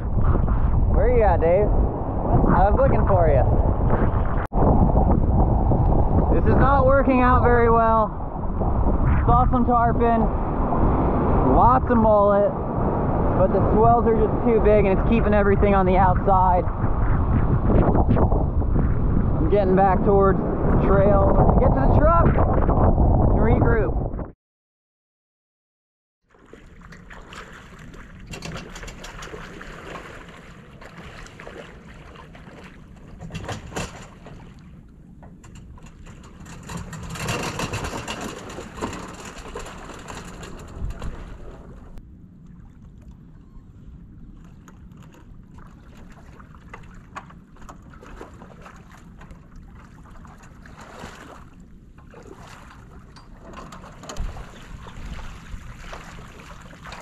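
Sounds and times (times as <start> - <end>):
wind noise on microphone: 0.0 - 24.4, 32.4 - 42.3, 43.2 - 57.0
shallow water splashing: 26.3 - 57.0.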